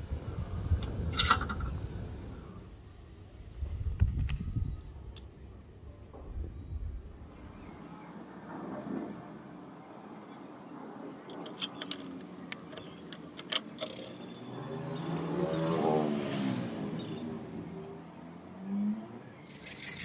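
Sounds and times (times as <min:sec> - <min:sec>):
vehicle engine passing by: 0:14.4 - 0:20.0.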